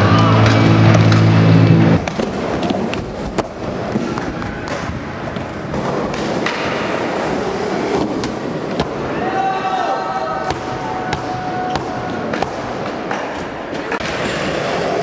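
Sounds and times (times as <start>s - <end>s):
skateboard wheels rolling on concrete: 0.0s - 15.0s
skateboard clacks: 2.0s - 8.9s.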